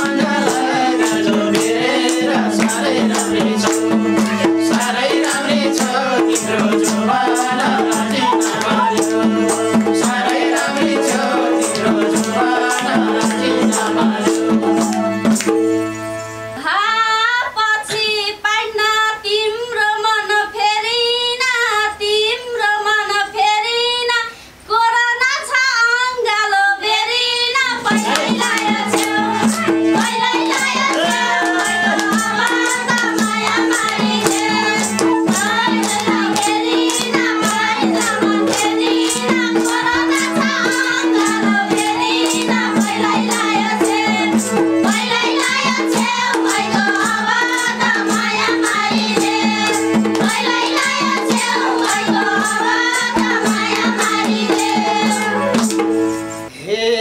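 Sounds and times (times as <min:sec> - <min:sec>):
group singing together: 0:00.0 - 0:15.5, 0:26.3 - 0:56.2
hand drums beating fast: 0:00.0 - 0:15.8, 0:27.8 - 0:56.4
harmonium tones: 0:00.0 - 0:17.2, 0:27.8 - 0:56.5
clapping: 0:28.1 - 0:34.0, 0:35.8 - 0:39.8.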